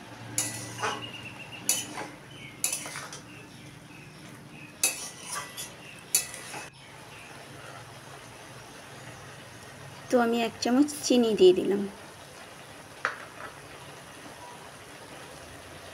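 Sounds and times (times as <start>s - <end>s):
metal spatula scraping a pan: 0.3s - 3.3s, 4.8s - 6.7s.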